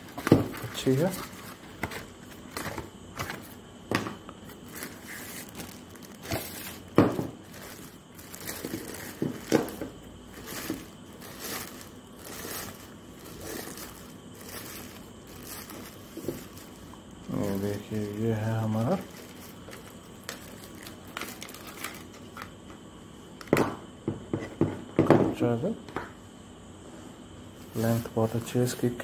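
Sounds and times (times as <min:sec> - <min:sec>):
plastic and cardboard crinkling: 0:00.0 - 0:22.5.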